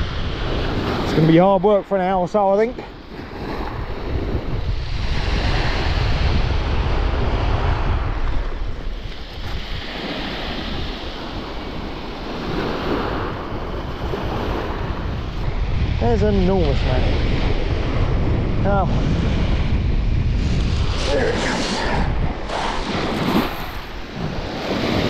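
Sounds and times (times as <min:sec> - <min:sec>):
wind buffeting microphone: 0:00.0 - 0:25.0
sea waves breaking on shingle: 0:20.5 - 0:25.0.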